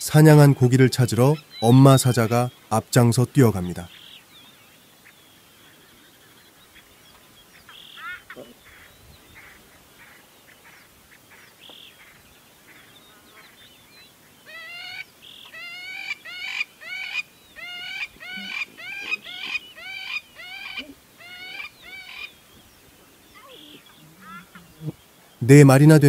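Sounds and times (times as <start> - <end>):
faint chirping: 0.0 - 26.0
short pitched animal calls: 7.7 - 13.6, 14.4 - 22.4, 23.3 - 25.0.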